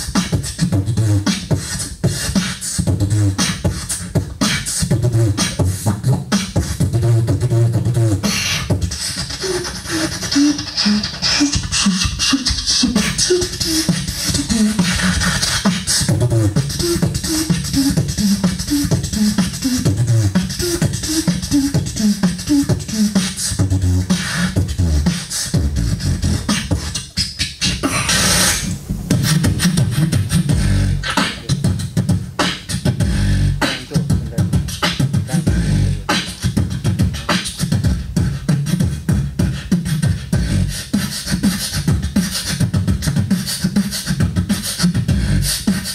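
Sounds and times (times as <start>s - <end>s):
beatboxing drum hits: 0.0s - 45.9s
hummed notes: 13.1s - 36.9s.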